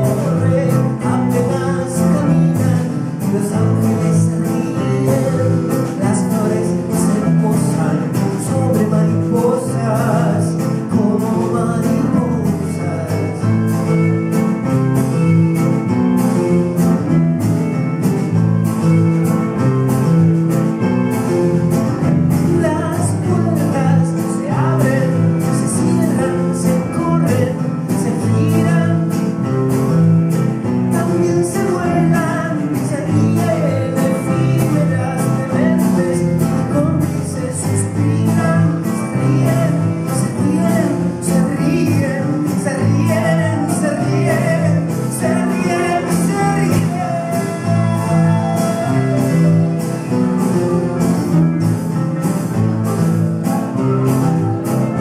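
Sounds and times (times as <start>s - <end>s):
man singing: 0.0s - 16.8s, 21.2s - 51.9s
acoustic guitar: 0.0s - 55.0s
bandoneon: 38.7s - 55.0s.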